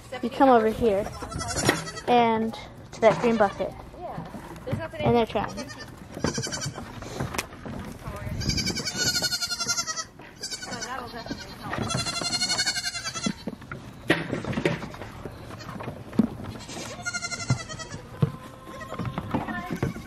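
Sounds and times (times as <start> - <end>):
baby goats bleating: 1.0 - 2.1, 5.4 - 6.9, 8.2 - 13.6, 16.5 - 20.0
hooves knocking on wooden boards: 3.0 - 20.0.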